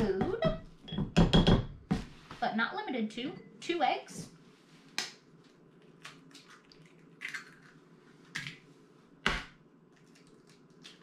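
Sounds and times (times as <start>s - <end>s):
eggs cracking on bowl rim: 6.0s - 8.6s.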